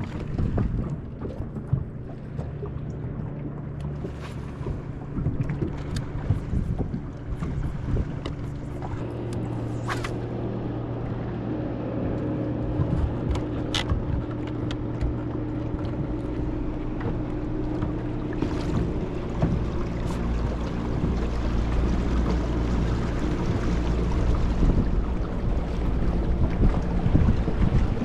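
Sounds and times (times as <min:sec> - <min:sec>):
water noise: 0:00.0 - 0:28.0
wind noise: 0:04.7 - 0:10.0, 0:18.5 - 0:28.0.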